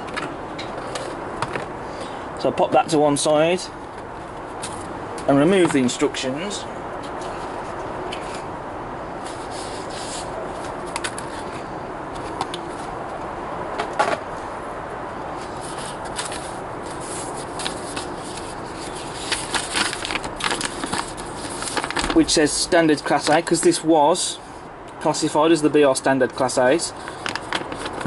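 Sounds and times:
paper rustling: 15.4s - 23.8s, 27.0s - 28.0s.

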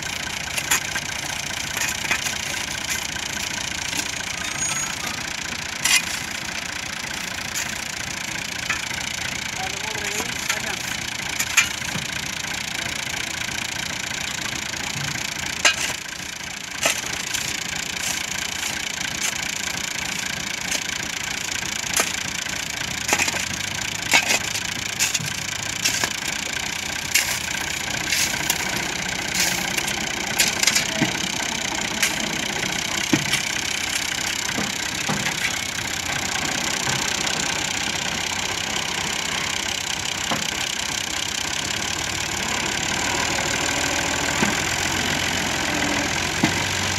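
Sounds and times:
tractor diesel engine idling: 0.0s - 46.9s
spade digging into gravel: 0.5s - 5.1s, 5.8s - 6.3s, 15.6s - 16.0s, 21.9s - 22.2s, 23.0s - 26.2s, 27.0s - 35.6s.

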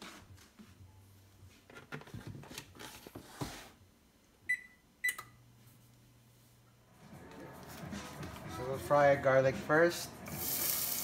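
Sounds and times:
short beeps: 4.5s - 5.3s.

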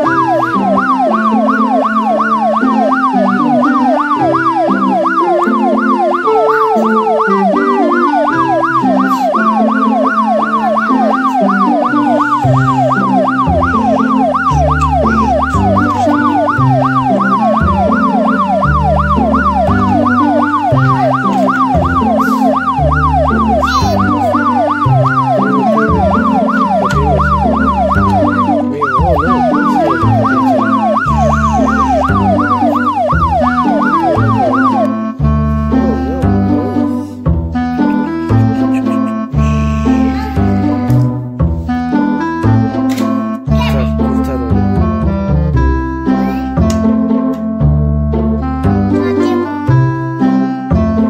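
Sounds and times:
siren wail in music: 0.0s - 37.1s, 37.8s - 41.1s
bass line: 0.0s - 51.0s
synth melody: 0.0s - 51.0s.

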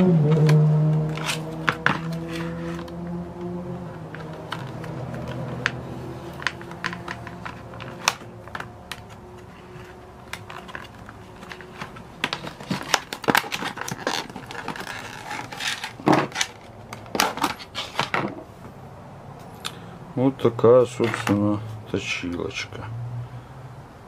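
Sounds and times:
plastic clicking and crackling: 4.1s - 9.2s.

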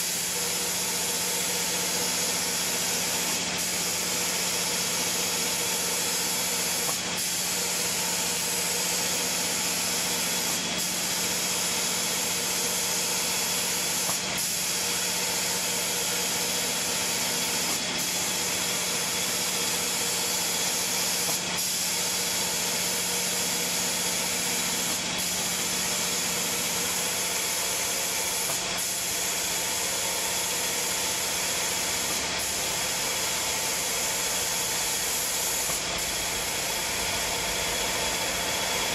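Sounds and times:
spray guns hissing: 0.0s - 38.9s.

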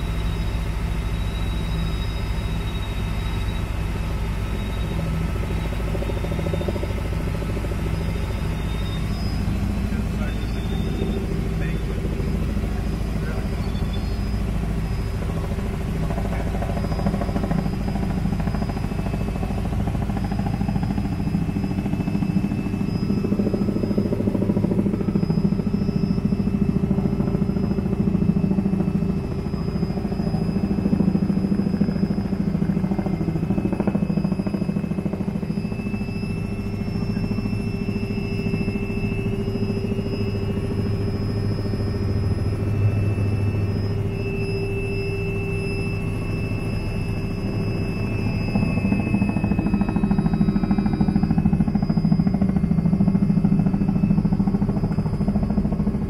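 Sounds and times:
helicopter turbine and rotor: 0.0s - 56.0s.

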